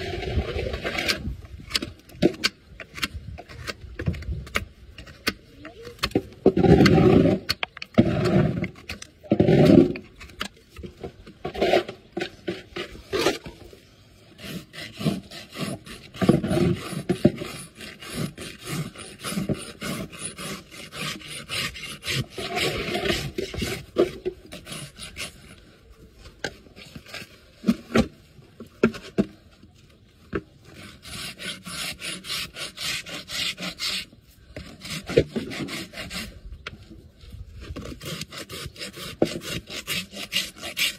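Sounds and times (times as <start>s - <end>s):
rasp scraping horse hoof: 6.0s - 13.7s, 14.3s - 25.6s, 30.6s - 36.7s, 37.6s - 40.9s.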